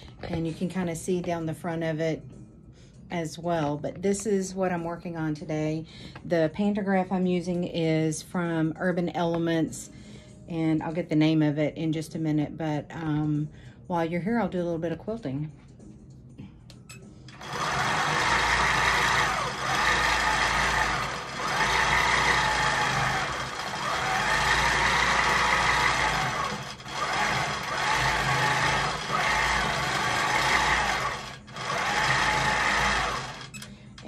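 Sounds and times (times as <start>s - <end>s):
quilting machine stitching hum: 17.3s - 34.0s.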